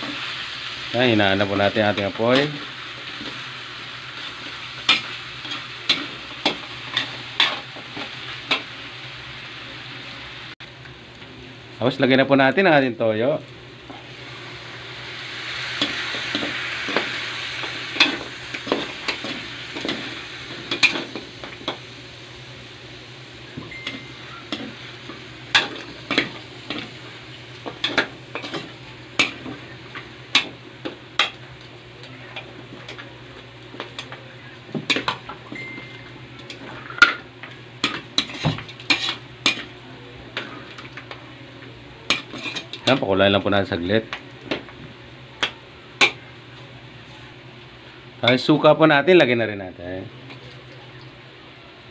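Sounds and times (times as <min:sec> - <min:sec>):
sauce sizzling in a hot wok: 0:00.0 - 0:12.2, 0:13.5 - 0:47.1
metal spatula scraping a wok: 0:37.8 - 0:39.7.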